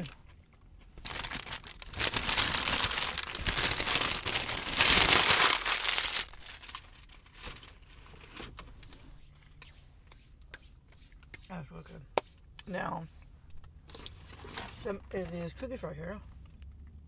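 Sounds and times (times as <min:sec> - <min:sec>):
food wrapping crinkling: 0:00.0 - 0:08.6.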